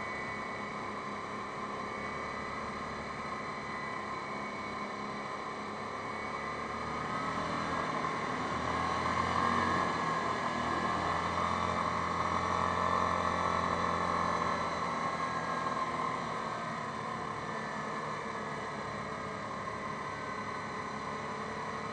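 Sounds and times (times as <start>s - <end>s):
quad bike engine running: 6.3s - 17.9s.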